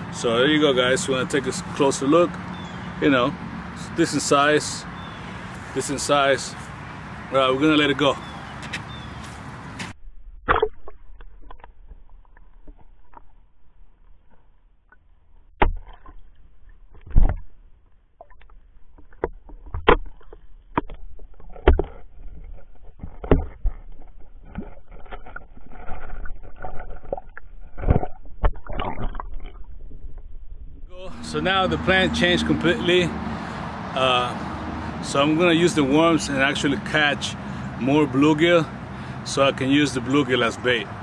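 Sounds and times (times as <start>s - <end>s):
underwater rumble: 10.0s - 32.1s
underwater knocks and clicks: 10.4s - 13.4s, 15.6s - 30.9s.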